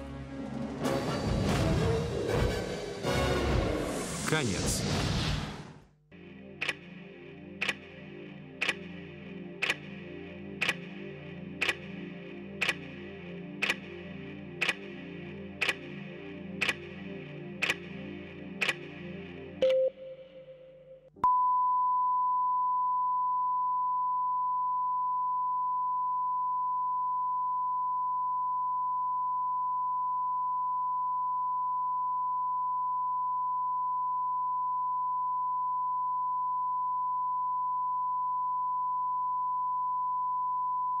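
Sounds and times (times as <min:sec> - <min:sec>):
click: 0:07.6 - 0:07.8, 0:09.6 - 0:09.8, 0:10.6 - 0:10.9, 0:11.6 - 0:11.8, 0:12.6 - 0:12.8, 0:13.6 - 0:13.8, 0:18.6 - 0:18.8
lower beep: 0:19.6 - 0:41.0
steady sine test tone: 0:21.2 - 0:41.0.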